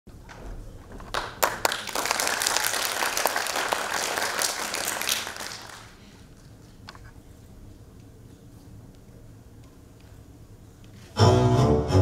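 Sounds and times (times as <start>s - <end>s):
audience applauding: 1.0s - 6.1s.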